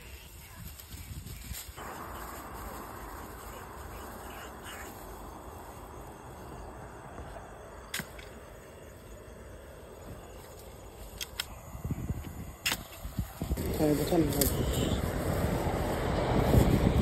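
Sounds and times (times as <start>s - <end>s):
footsteps rustling dry grass: 0.0s - 8.2s, 9.8s - 17.0s
night insects chirring: 0.0s - 17.0s
sharp clicks: 7.9s - 8.4s, 11.0s - 11.6s, 12.2s - 13.2s.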